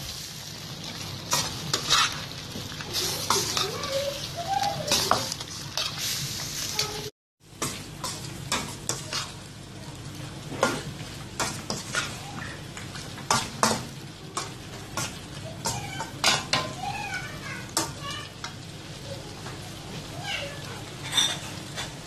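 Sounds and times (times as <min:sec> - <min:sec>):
chicken sizzling in a pan: 0:00.0 - 0:22.0
spatula scraping a steel pan: 0:01.3 - 0:02.2.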